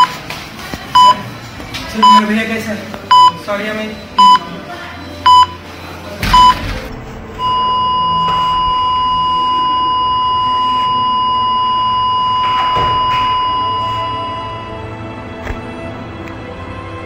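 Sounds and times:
heart monitor beeping: 1.0s - 1.2s, 2.0s - 2.3s, 3.1s - 3.4s, 4.2s - 4.5s, 5.2s - 5.6s, 6.3s - 6.6s, 7.4s - 14.8s
heart monitor flatline tone: 5.3s - 5.6s, 7.4s - 14.8s.

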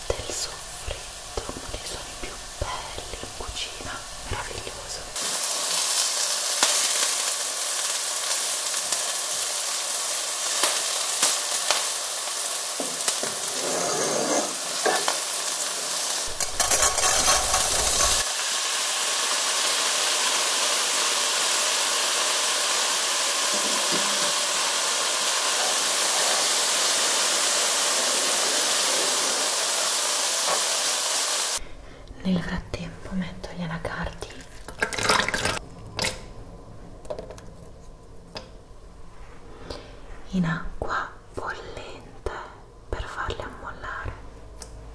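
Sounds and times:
onion sizzling in oil: 0.0s - 4.3s, 4.9s - 31.6s
wooden spatula scraping pan: 13.4s - 15.0s, 16.3s - 18.2s.

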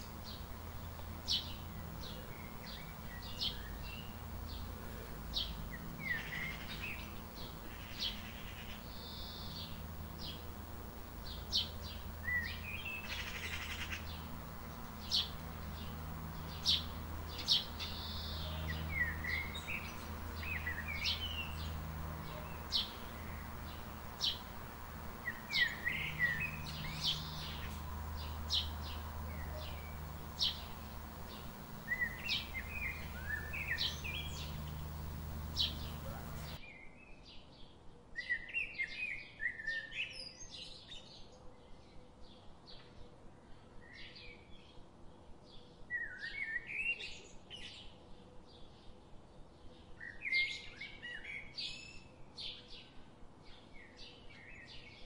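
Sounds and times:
small birds chirping and warbling: 0.0s - 36.6s.

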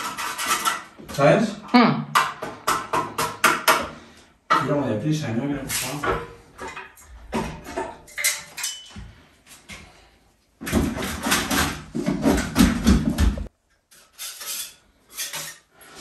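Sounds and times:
hand tools scraping plaster: 0.0s - 1.3s, 10.6s - 13.2s.

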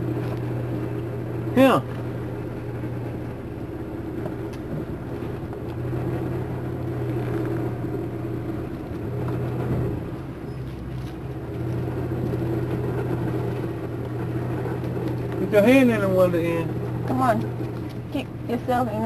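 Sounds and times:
van engine running at low revs: 0.0s - 19.0s.

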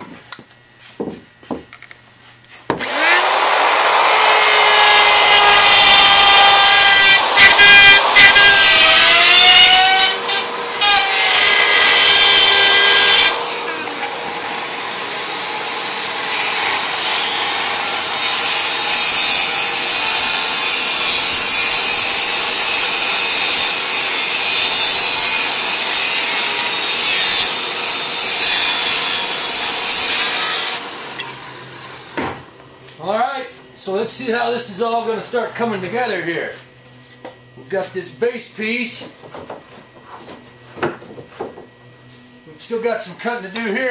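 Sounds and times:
wood router whining: 2.7s - 42.9s
circular saw cutting wood: 2.8s - 32.2s.

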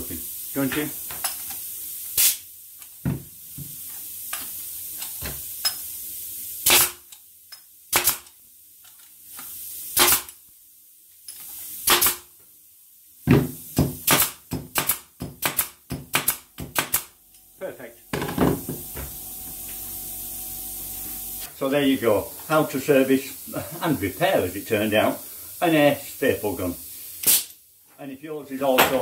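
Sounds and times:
air stapler firing into wood: 6.6s - 7.0s, 7.9s - 8.3s, 10.0s - 10.4s, 11.8s - 12.3s, 13.7s - 17.1s, 27.2s - 27.5s.

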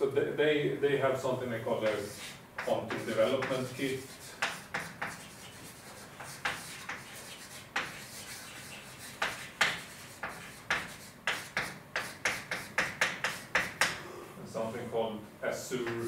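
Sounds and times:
short scrapes and taps: 1.8s - 14.0s.

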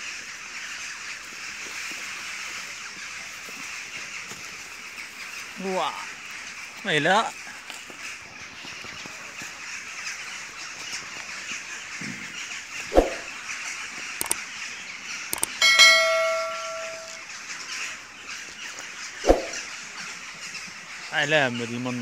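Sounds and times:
sharp mouse clicks: 12.9s - 13.3s, 14.2s - 14.4s, 15.3s - 15.6s
bright bell ding: 15.6s - 17.2s.

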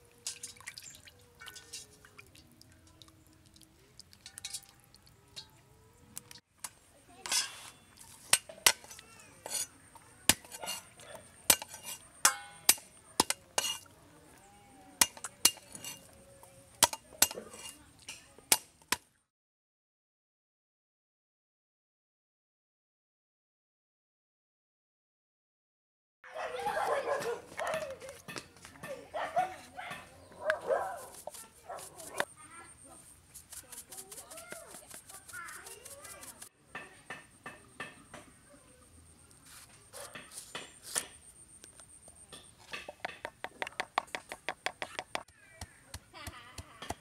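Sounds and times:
cleaver scraping board: 8.8s - 9.7s, 30.9s - 32.3s, 33.3s - 36.5s, 39.5s - 41.2s.

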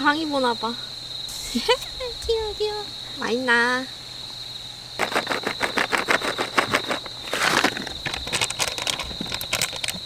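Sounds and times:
crickets trilling: 0.0s - 10.0s
treat bag crinkling: 5.0s - 10.0s
cat crunching dry treats: 6.2s - 10.0s.

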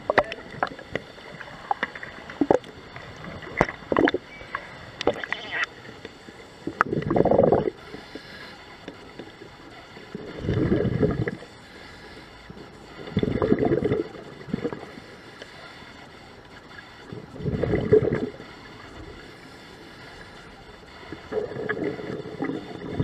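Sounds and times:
diver's exhaled bubbles rushing: 6.7s - 7.8s, 10.2s - 11.4s, 13.2s - 14.9s, 17.1s - 18.4s, 21.2s - 23.0s.

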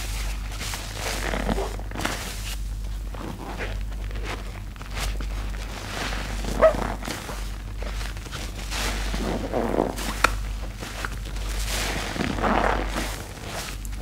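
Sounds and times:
rubber glove squeak: 6.4s - 7.3s.

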